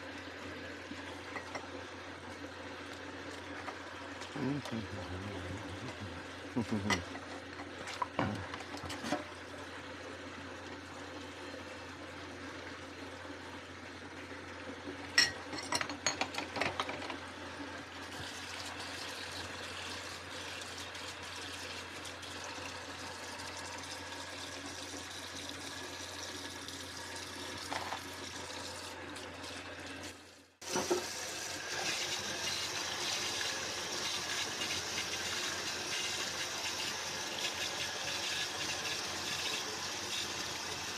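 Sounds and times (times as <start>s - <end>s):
dishes clinking: 15.2s - 17.0s
tap water running into sink: 18.0s - 40.9s.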